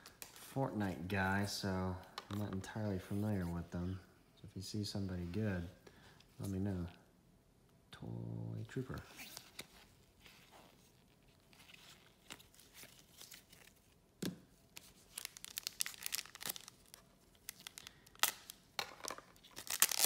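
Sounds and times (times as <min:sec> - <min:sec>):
foil wrapper crinkling: 0:14.8 - 0:18.6, 0:19.4 - 0:20.0.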